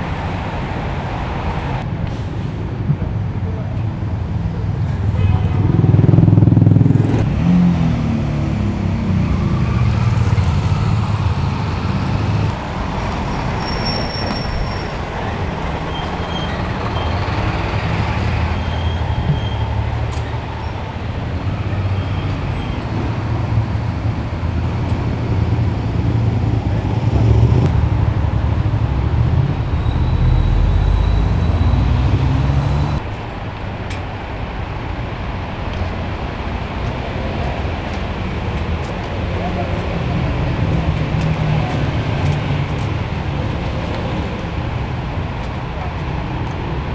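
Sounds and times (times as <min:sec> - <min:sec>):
vehicle engines running: 0:00.0 - 0:46.9
vehicles passing: 0:00.0 - 0:46.9.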